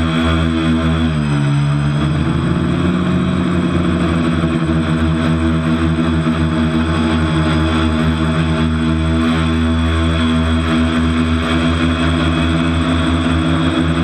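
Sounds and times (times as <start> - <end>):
quadcopter propellers buzzing: 0.0 - 14.0.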